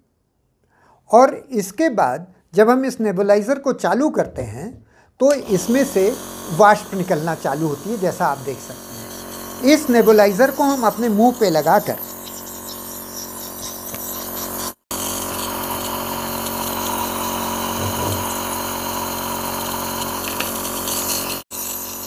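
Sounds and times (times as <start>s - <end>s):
nebulizer motor hum: 5.3s - 22.0s.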